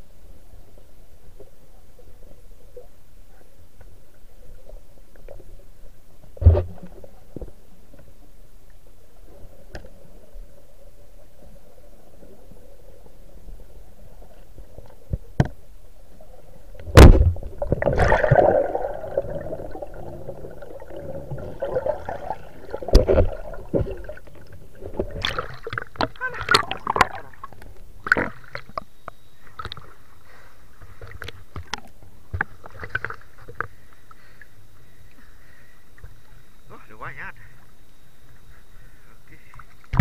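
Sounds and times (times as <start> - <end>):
churning bubbling water: 16.8 - 28.3
small splashes: 16.9 - 28.7.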